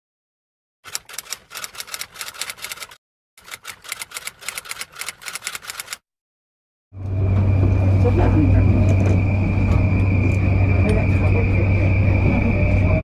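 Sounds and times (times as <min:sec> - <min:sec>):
typewriter keys clacking: 0:00.9 - 0:06.0.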